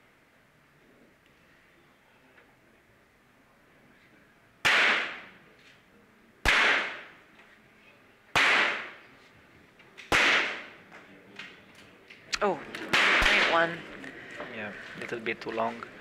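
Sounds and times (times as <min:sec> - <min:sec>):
pistol shots: 0:04.6 - 0:05.3, 0:06.4 - 0:07.1, 0:08.3 - 0:09.0, 0:10.1 - 0:10.8, 0:12.8 - 0:13.7.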